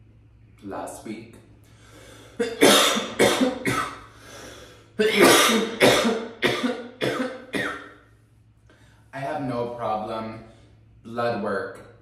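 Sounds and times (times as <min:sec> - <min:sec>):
person coughing hard: 0:02.4 - 0:04.1, 0:05.0 - 0:08.0.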